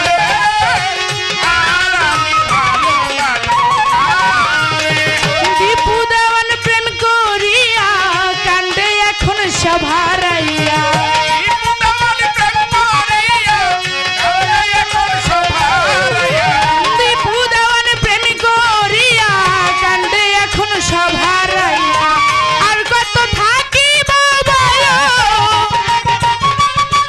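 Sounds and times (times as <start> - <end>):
woman singing: 0.0 - 26.0
instrumental accompaniment: 0.0 - 27.0
hand drum strokes: 4.3 - 6.1.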